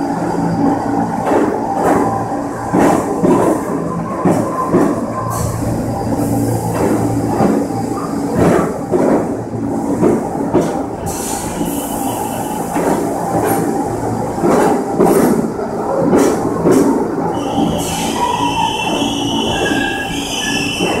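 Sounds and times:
subway train low hum: 0.0s - 21.0s.

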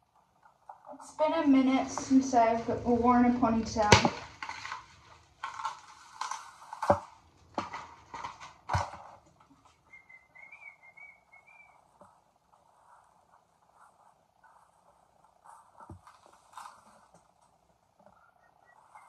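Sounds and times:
synthetic hair rustling: 0.0s - 19.0s
packaging crinkling: 3.9s - 14.8s, 15.4s - 17.6s
faint wavering whistle: 9.8s - 11.8s, 18.2s - 19.0s.

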